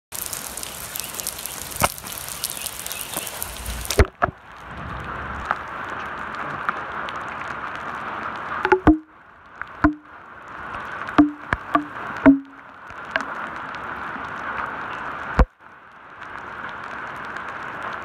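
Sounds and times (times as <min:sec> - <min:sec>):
heavy rain on asphalt: 0:00.1 - 0:18.0
single drops tapping: 0:08.7 - 0:09.1, 0:09.8 - 0:10.1, 0:11.2 - 0:12.6.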